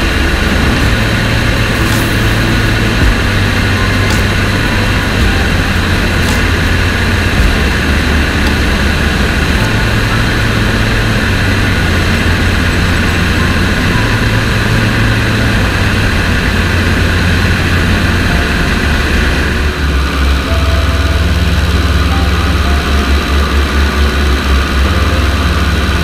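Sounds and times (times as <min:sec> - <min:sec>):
wind rush over microphone: 0:00.0 - 0:20.0
biplane engine and propeller: 0:00.0 - 0:26.0.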